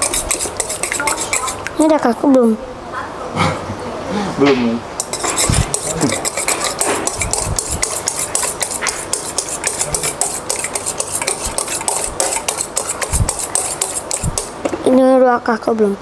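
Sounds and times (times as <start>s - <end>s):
whisk clicking in metal bowl: 0.0s - 1.8s, 5.0s - 14.5s.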